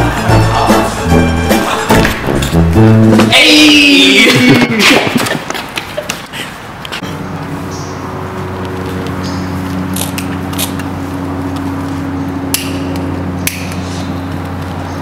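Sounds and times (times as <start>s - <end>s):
low mechanical hum: 7.0s - 15.0s.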